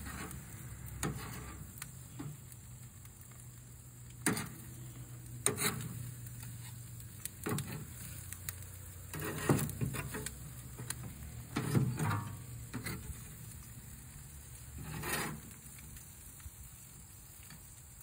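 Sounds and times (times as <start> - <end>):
metal utensil scraping a grate: 0.0 - 2.4, 4.2 - 4.8, 5.4 - 6.8, 7.4 - 13.5, 14.7 - 15.7.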